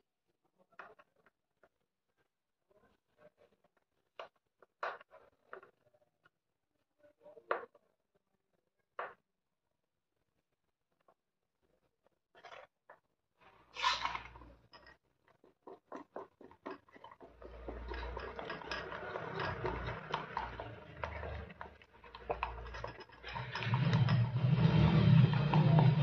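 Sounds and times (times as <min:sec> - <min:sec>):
spoon stirring in steel bowl: 0:13.8 - 0:26.0.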